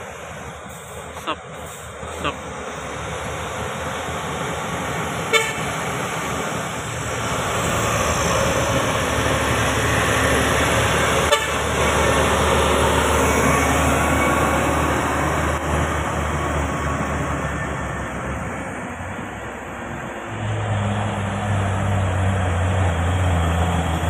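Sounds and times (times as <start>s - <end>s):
truck diesel engine: 0.0s - 24.0s
truck horn toots: 5.3s - 5.8s, 11.0s - 12.1s.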